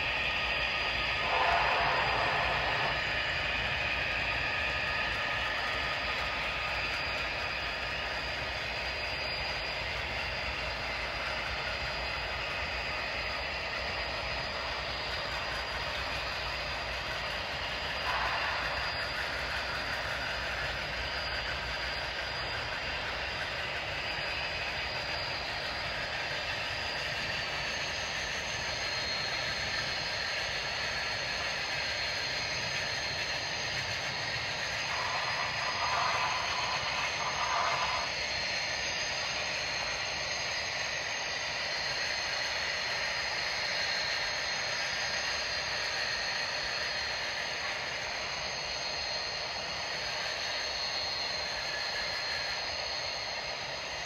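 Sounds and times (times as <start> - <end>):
freight train cars rolling: 1.2 - 3.8, 34.8 - 38.1.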